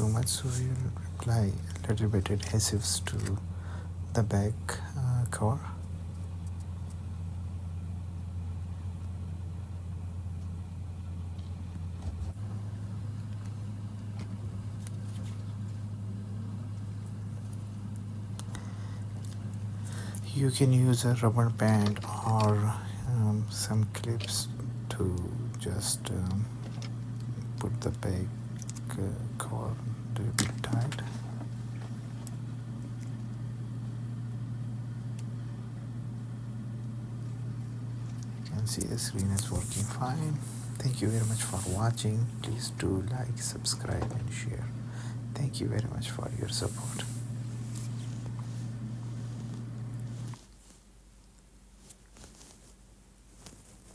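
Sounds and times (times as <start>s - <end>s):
low electrical hum: 0.0s - 53.9s.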